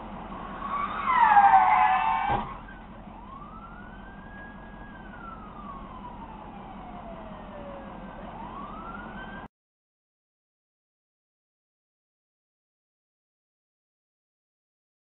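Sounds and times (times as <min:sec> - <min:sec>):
emergency vehicle siren wailing: 0:00.0 - 0:09.5.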